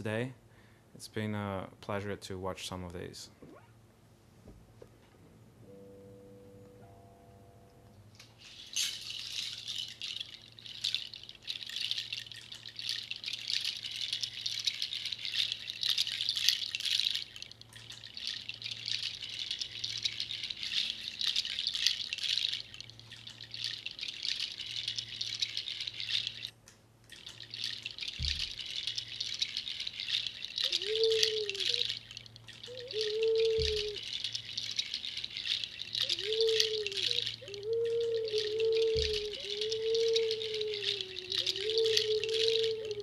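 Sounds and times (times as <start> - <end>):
faint low hum: 0.0 - 43.0
small object rattling and rustling: 8.2 - 43.0.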